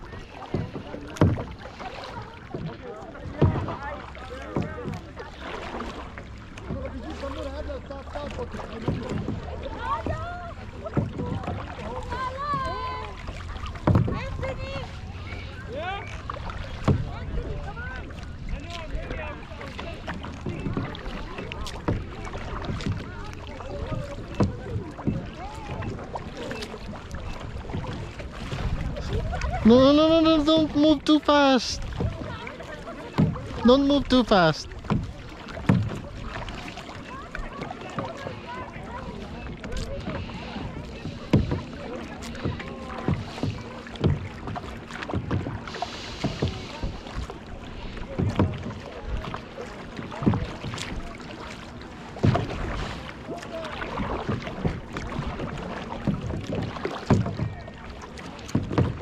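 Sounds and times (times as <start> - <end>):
low rumble of water and air: 0.0 - 59.0
paddle splashing in water: 0.0 - 59.0
faint distant voices: 34.3 - 58.9.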